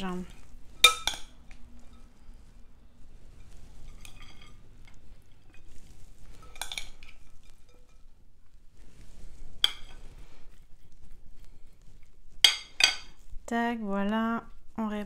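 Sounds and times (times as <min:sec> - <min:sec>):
metal forks clinking on metal bowl: 0:00.8 - 0:02.1.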